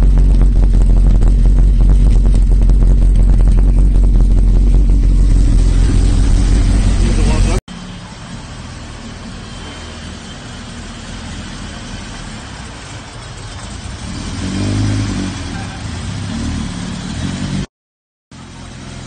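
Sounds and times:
car engine at low revs: 0:00.0 - 0:09.6, 0:18.4 - 0:19.0.

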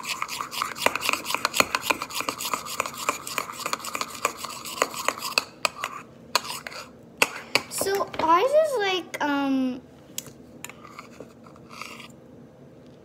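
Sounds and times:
metal spoon scraping ceramic bowl: 0:00.0 - 0:06.9, 0:10.6 - 0:12.1.

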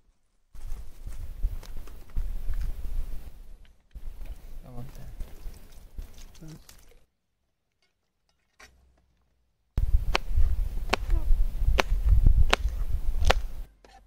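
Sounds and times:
steady low rumble: 0:09.8 - 0:13.7
knife chopping on plastic board: 0:11.8 - 0:13.5.

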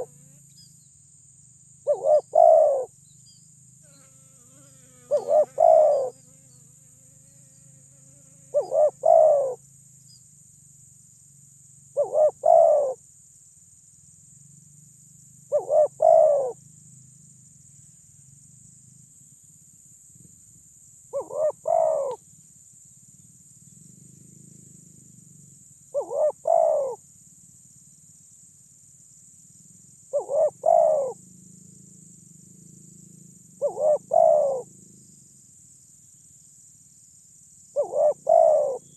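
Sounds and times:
high-pitched insect drone: 0:00.0 - 0:19.6, 0:20.2 - 0:38.9
dove cooing: 0:01.9 - 0:02.9, 0:05.1 - 0:06.2, 0:08.5 - 0:09.6, 0:12.0 - 0:13.0, 0:15.5 - 0:16.6, 0:21.2 - 0:22.2, 0:26.0 - 0:27.0, 0:30.1 - 0:31.2, 0:33.6 - 0:34.7, 0:37.8 - 0:38.9.

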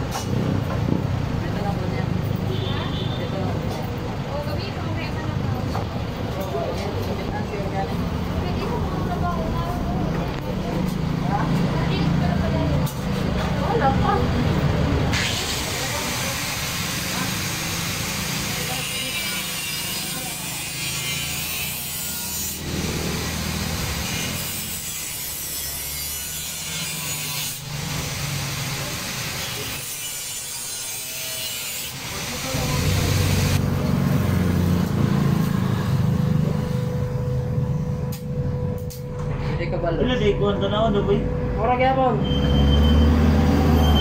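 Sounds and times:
power tool cutting rasping hiss: 0:15.1 - 0:34.4.

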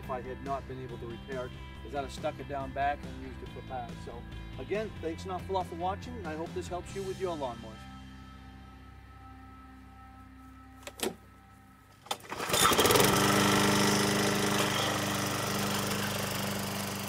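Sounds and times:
lawn mower engine running: 0:12.0 - 0:17.0
starter rope pull: 0:12.0 - 0:17.0.

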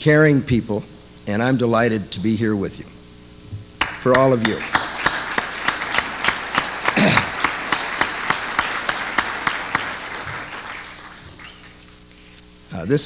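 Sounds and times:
audience applauding: 0:03.8 - 0:12.1.

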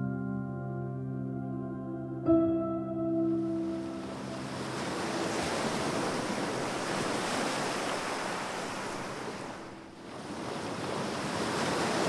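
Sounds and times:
ocean surf rushing: 0:03.4 - 0:12.0.

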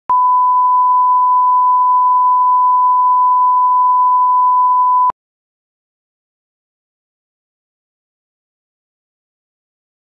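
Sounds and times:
test tone beep: 0:00.1 - 0:05.1.

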